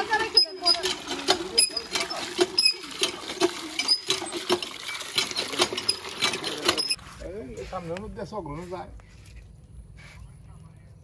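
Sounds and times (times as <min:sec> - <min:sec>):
hand pump handle squeaking and clanking: 0:00.0 - 0:07.0
water splashing into bucket: 0:00.0 - 0:07.0.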